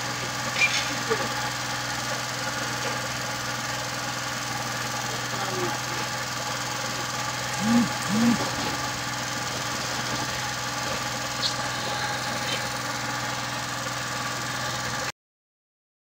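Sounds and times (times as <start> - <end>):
small engine humming: 0.0 - 15.1
person shouting: 7.6 - 8.5.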